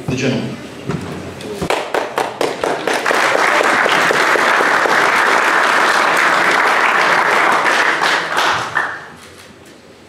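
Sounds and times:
audience applauding: 1.7 - 9.2.

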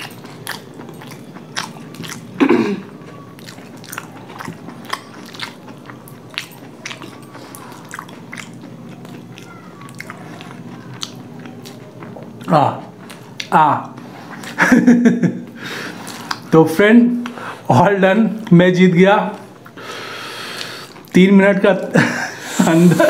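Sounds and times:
people chewing: 0.0 - 16.5, 19.3 - 23.0.

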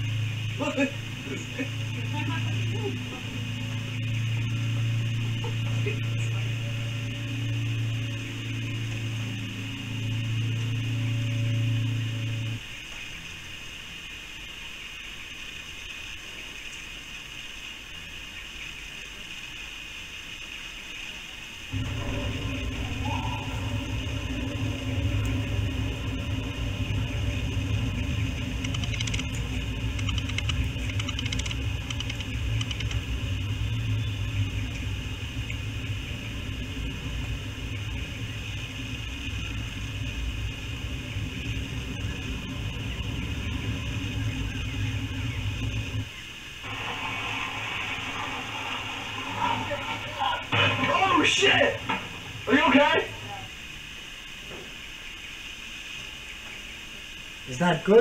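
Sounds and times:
faint low rumble: 0.0 - 12.6, 21.7 - 54.4
high-pitched hiss: 0.0 - 58.0
faint clicks: 28.6 - 33.0.

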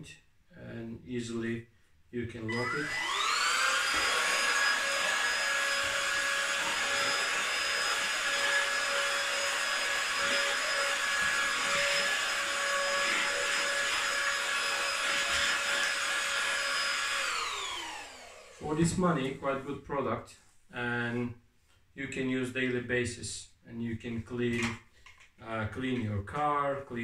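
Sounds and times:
handheld vacuum motor whine: 2.5 - 18.8.

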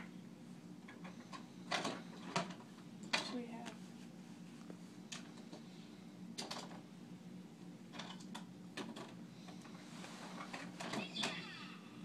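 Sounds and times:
toys clattering and rustling: 7.9 - 9.2, 10.3 - 11.4.

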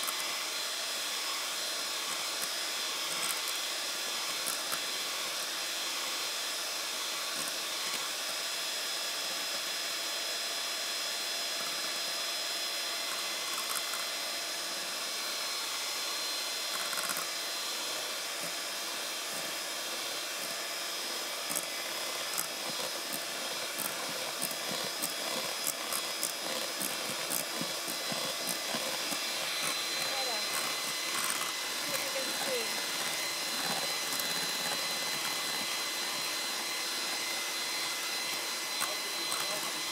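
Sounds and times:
electric hand mixer whining: 0.0 - 39.9.

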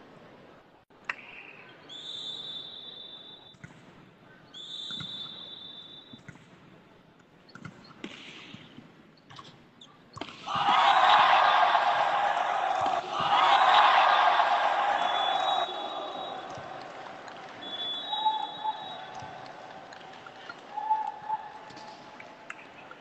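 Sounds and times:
whistle blasts: 1.9 - 3.6, 4.6 - 6.3, 14.6 - 16.8, 17.6 - 19.5
volleyball hits: 10.2 - 23.0
crowd cheering and shouting: 10.4 - 22.8.

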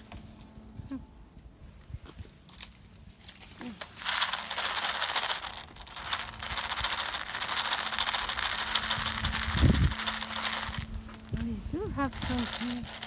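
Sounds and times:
kibble rattling in plastic tub: 3.7 - 11.3, 12.1 - 13.0.

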